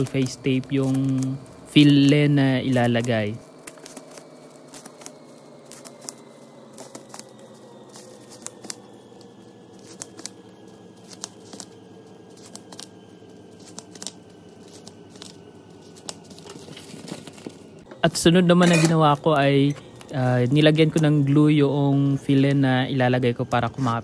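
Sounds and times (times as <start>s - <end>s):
tape and plastic wrap crinkling: 0.0s - 17.8s, 18.4s - 21.1s
faint steady hum: 0.0s - 24.0s.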